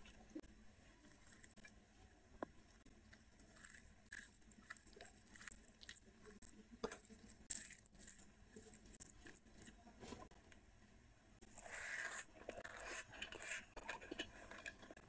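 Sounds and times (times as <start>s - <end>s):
fingers mashing rice: 2.5s - 10.2s.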